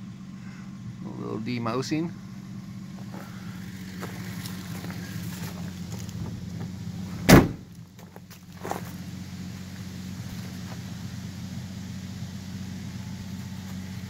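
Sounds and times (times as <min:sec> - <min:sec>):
steady low hum: 0:00.0 - 0:14.0
car door slamming: 0:07.1 - 0:07.8.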